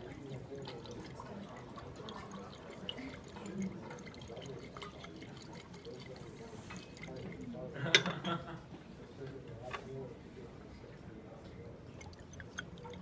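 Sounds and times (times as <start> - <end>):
small ticks and drips: 0.0 - 7.6, 11.9 - 13.0
liquid sloshing in a glass flask: 0.0 - 8.2, 11.8 - 13.0.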